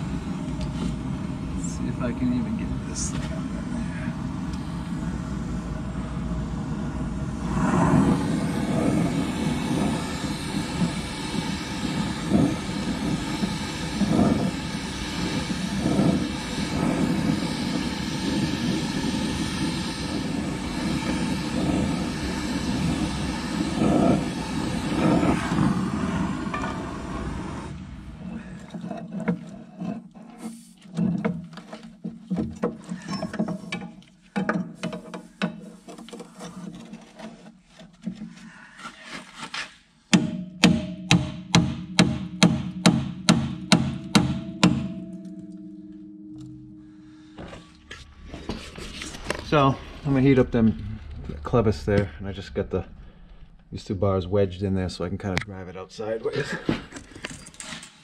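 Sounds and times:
gas torch flame roaring: 0:00.0 - 0:31.4, 0:41.7 - 0:45.6, 0:47.3 - 0:55.4.

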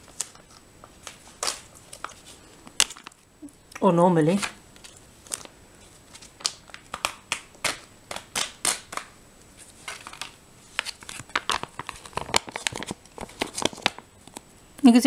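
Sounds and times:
foil pouch crinkling: 0:04.3 - 0:14.1.

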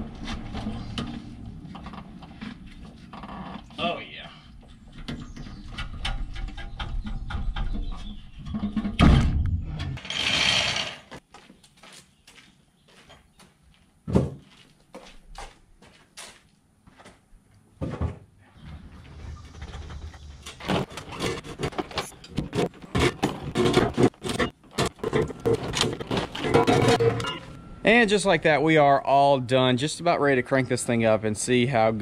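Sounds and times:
thuds: 0:07.2 - 0:09.9.

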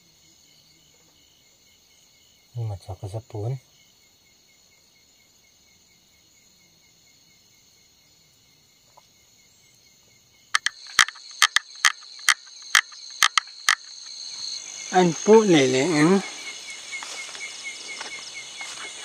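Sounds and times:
night insects chirring: 0:00.0 - 0:19.0
sharp loud clicks: 0:10.6 - 0:13.9.

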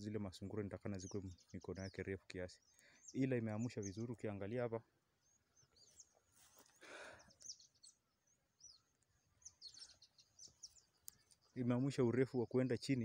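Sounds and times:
faint bird chirps: 0:00.0 - 0:13.0
soft rustle: 0:05.8 - 0:06.9.

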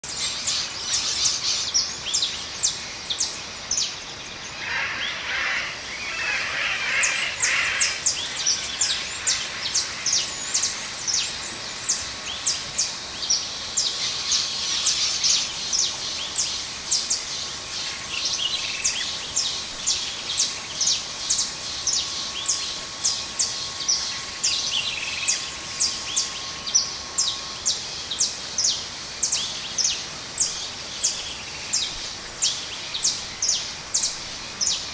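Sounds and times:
birds chirping: 0:00.4 - 0:14.9
thin steady tone: 0:07.8 - 0:34.9.

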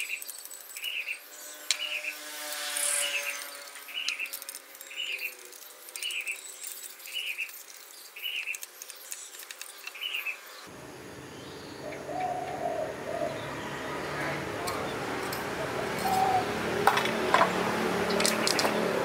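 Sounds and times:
small bird chirping: 0:00.0 - 0:02.2, 0:02.9 - 0:15.0
dove cooing: 0:11.7 - 0:17.3.

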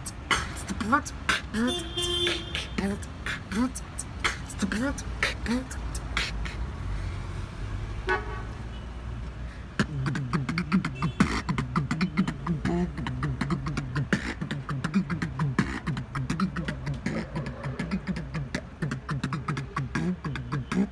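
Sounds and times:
beatboxing kicks clicks and snares: 0:00.0 - 0:06.7, 0:09.8 - 0:20.9
buzzing lip sound: 0:09.8 - 0:20.9.

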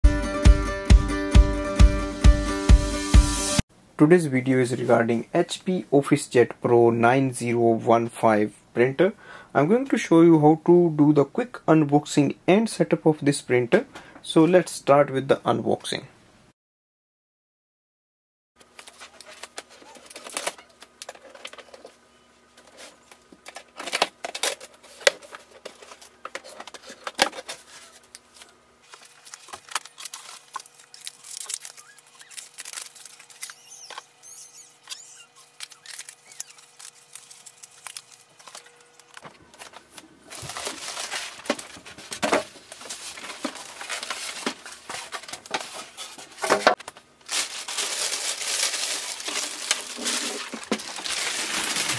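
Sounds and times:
plastic bag crinkling: 0:18.6 - 0:22.0, 0:22.6 - 0:51.9
scissors cutting packing tape: 0:29.0 - 0:34.1, 0:34.8 - 0:39.2.

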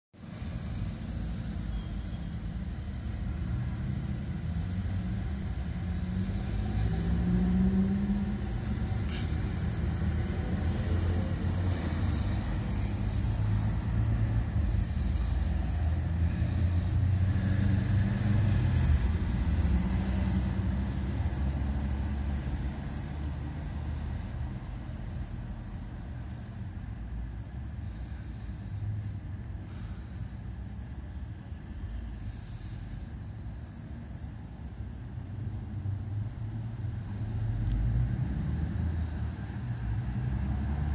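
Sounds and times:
vehicle engine rumbling: 0:00.2 - 0:40.9.

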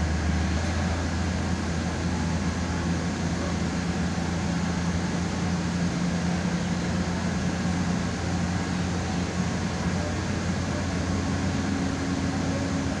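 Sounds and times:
diesel engine hum: 0:00.0 - 0:13.0.

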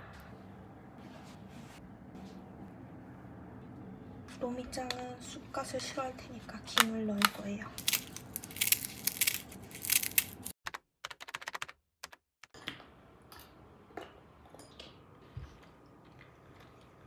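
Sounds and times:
seaweed crackling when crumbled: 0:07.8 - 0:10.5.

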